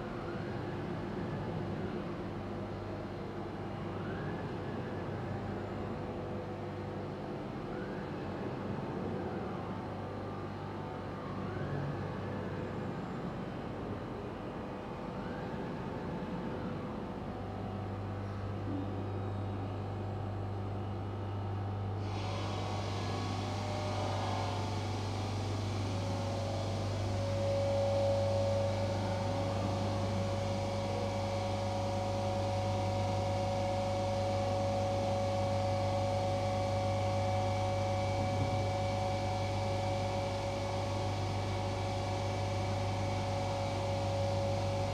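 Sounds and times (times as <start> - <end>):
steady machine hum: 0.0 - 3.6, 16.6 - 44.9
hiss: 22.0 - 28.2.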